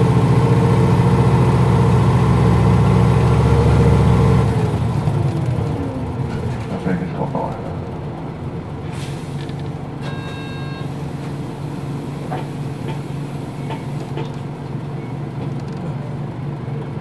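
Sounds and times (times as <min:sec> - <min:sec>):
bus diesel engine hum: 0:00.0 - 0:17.0
road noise: 0:00.0 - 0:17.0
short electronic chime: 0:10.0 - 0:10.9.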